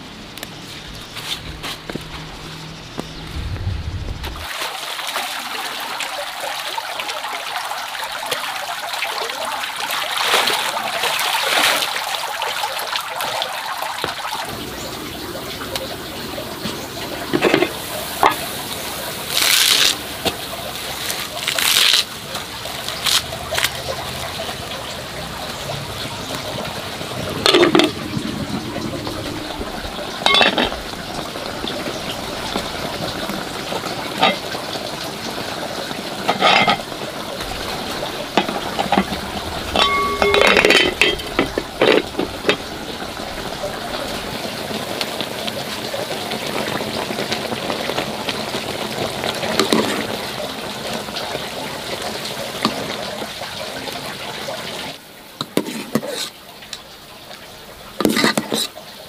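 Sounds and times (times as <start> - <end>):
pot boiling with bubbling hiss: 0.0 - 59.0
utensils clinking against pot: 17.3 - 18.4, 30.2 - 30.8, 34.2 - 34.5, 36.2 - 37.0, 38.3 - 42.7.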